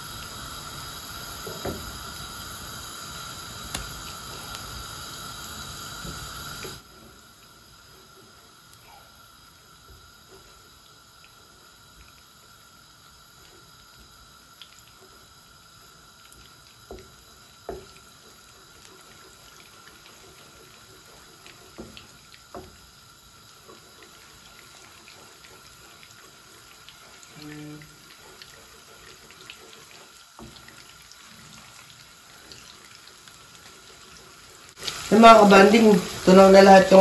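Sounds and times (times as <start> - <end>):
butter sizzling in frying pan: 0.0 - 37.0
spatula knocking against pan: 16.9 - 18.0.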